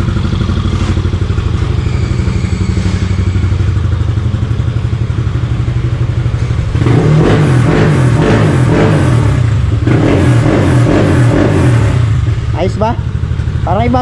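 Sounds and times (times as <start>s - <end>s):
scooter engine idling: 0.0s - 7.3s, 11.6s - 14.0s
scooter engine revving: 0.0s - 14.0s.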